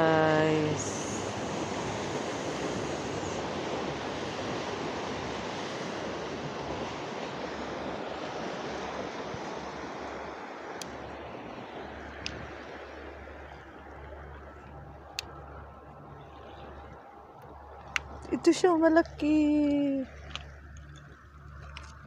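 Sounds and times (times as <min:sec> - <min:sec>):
sea surf: 0:00.0 - 0:22.0
wind on the shore: 0:00.0 - 0:22.0.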